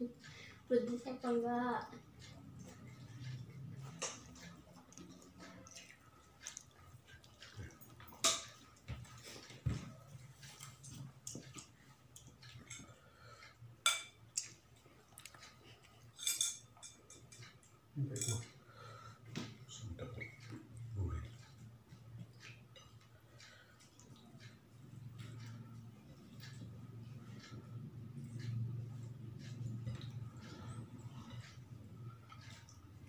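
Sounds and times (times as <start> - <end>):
low hum: 18.0 - 33.0.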